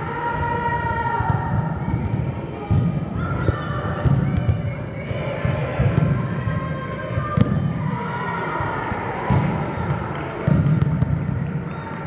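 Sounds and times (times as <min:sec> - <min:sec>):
volleyballs thumping on court floor: 0:08.8 - 0:11.4.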